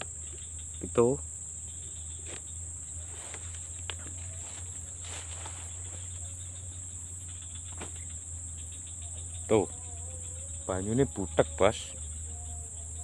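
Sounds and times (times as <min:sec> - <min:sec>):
insects chorus: 0:00.0 - 0:13.0
steps rustling through grass: 0:02.3 - 0:06.2.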